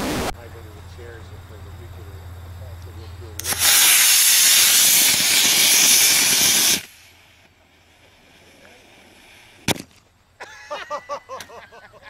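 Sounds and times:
rocket motor rushing hiss: 3.4s - 9.7s.

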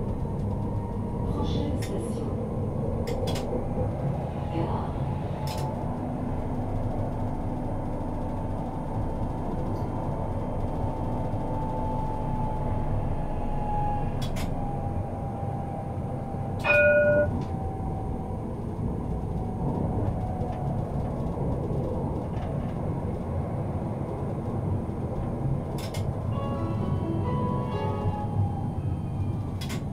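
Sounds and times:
tram rumbling with motor whine: 0.0s - 29.9s
ringing warning tone: 16.6s - 17.6s.

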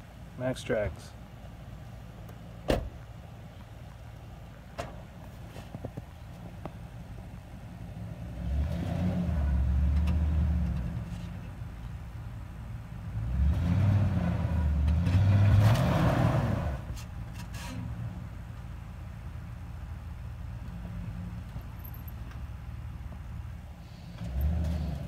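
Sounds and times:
pickup truck engine revving: 8.0s - 11.1s, 13.0s - 16.9s.

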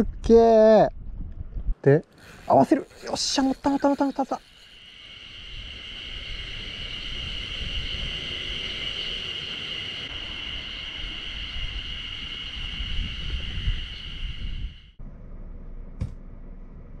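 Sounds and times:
cicadas singing: 1.9s - 15.0s.

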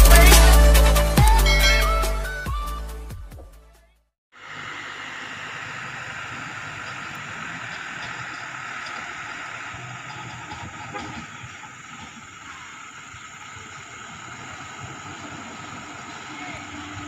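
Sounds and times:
diesel engine running at low revs: 4.4s - 17.0s.

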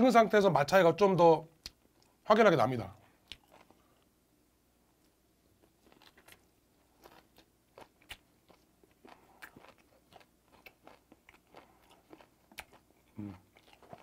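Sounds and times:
chewing with small crunches: 3.0s - 4.2s, 5.0s - 14.0s.

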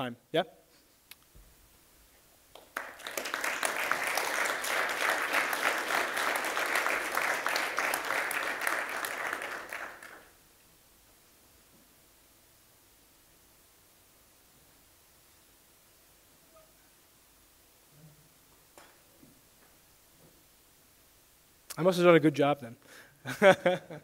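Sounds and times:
audience applauding: 2.5s - 10.4s.

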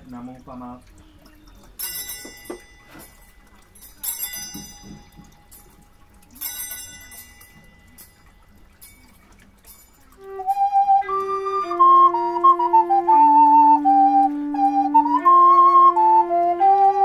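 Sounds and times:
altar bells ringing: 1.8s - 10.2s.

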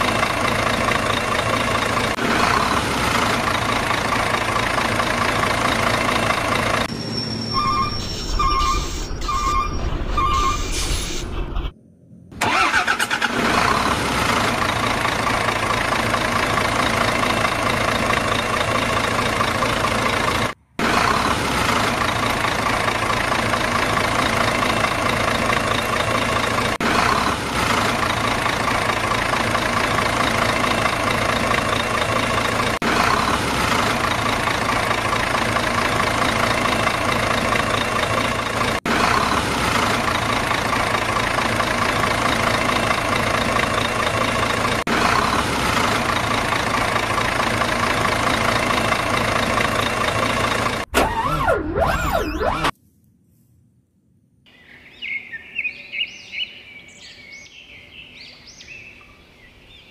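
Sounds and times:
heavy diesel engine idling: 0.0s - 9.4s, 12.4s - 50.9s.

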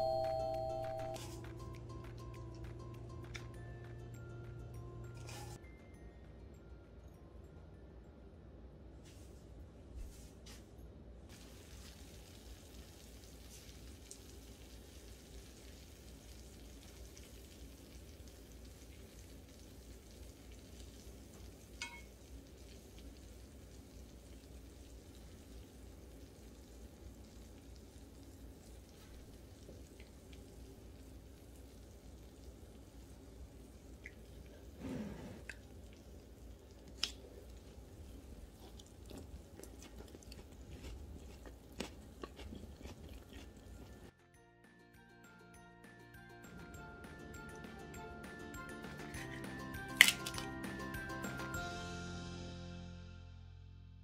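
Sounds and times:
low steady hum: 0.0s - 13.4s
cheese sizzling and popping: 11.3s - 34.8s, 35.4s - 44.1s, 48.9s - 50.5s.

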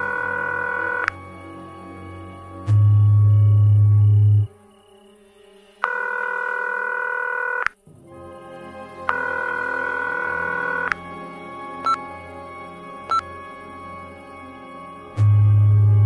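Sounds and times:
faint low music drone: 0.0s - 16.0s.

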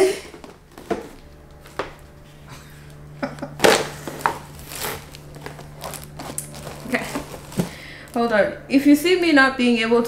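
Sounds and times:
plastic crinkling: 3.5s - 8.4s.

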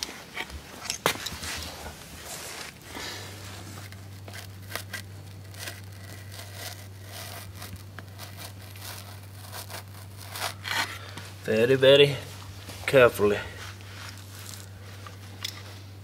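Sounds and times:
steady low hum: 0.0s - 16.0s
razor blade slicing carpet: 2.6s - 11.2s.

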